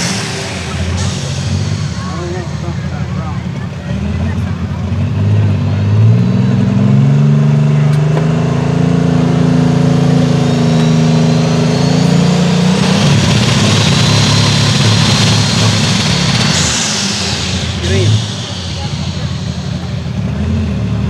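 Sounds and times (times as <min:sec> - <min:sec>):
turbo whine: 0:00.0 - 0:06.9, 0:09.6 - 0:21.0
diesel tractor engine roaring: 0:00.0 - 0:21.0.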